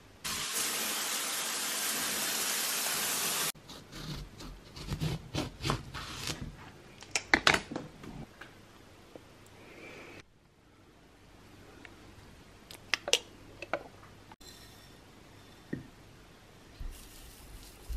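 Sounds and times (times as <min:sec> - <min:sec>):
shower spray hissing: 0:00.2 - 0:03.6.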